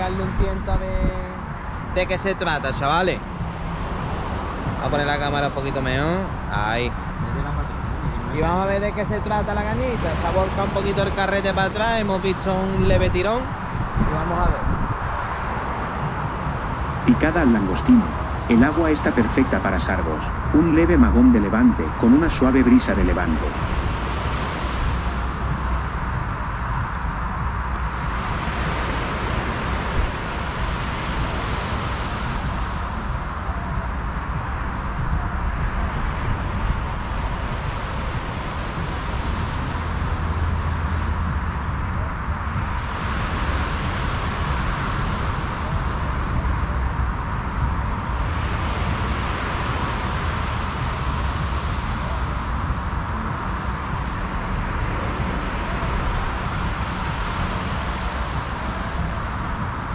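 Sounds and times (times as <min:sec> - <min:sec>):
wind on microphone: 0:00.0 - 0:59.9.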